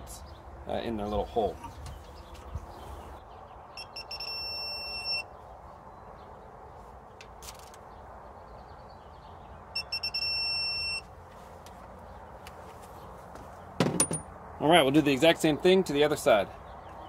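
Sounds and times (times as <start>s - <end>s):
torque wrench beeping: 3.8s - 5.2s, 9.8s - 11.0s.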